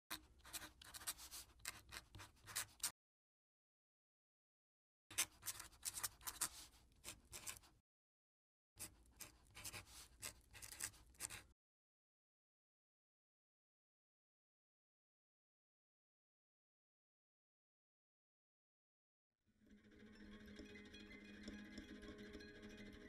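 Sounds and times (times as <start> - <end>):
pen scratching on paper: 0.1 - 2.9, 5.1 - 7.8, 8.8 - 11.5.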